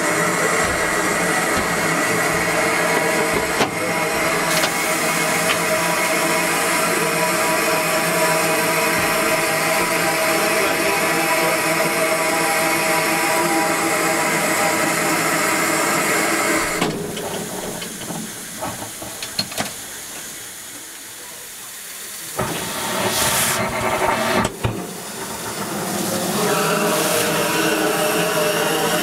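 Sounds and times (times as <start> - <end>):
steam hissing from locomotive: 0.0 - 29.0.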